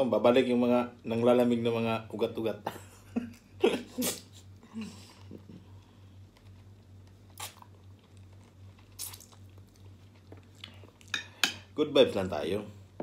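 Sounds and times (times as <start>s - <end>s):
low steady hum: 0.0s - 13.0s
man gnawing chicken off bone: 6.2s - 11.1s
mouth smacking: 7.3s - 7.9s, 8.9s - 9.6s.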